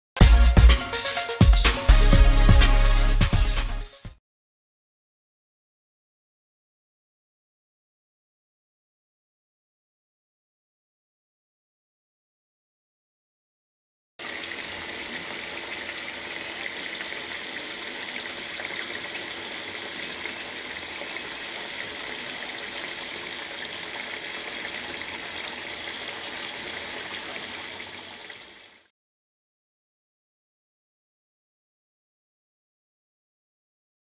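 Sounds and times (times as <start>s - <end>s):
food sizzling in hot oil: 14.2s - 28.8s.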